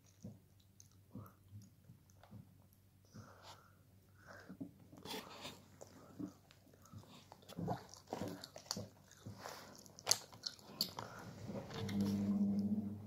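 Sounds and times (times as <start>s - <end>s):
person chewing chocolate: 0.0s - 2.3s, 5.0s - 12.7s.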